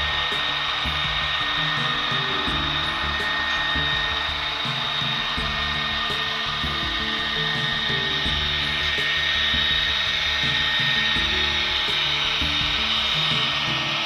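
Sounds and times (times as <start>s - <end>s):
background music: 0.0s - 14.0s
model trains whirring: 0.0s - 14.0s.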